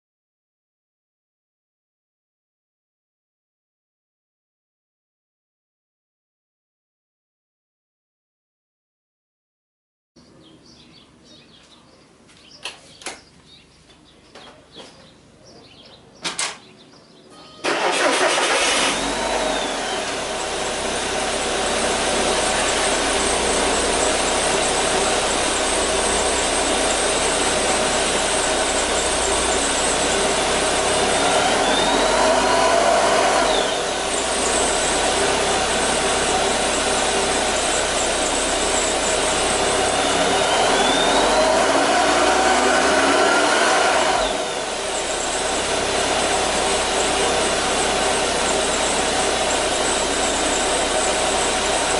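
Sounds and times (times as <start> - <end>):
car engine starting and idling: 17.6 - 51.9.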